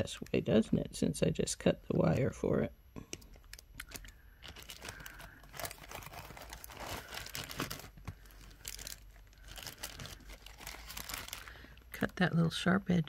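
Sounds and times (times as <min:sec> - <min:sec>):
plastic bag crinkling: 0:03.2 - 0:12.3.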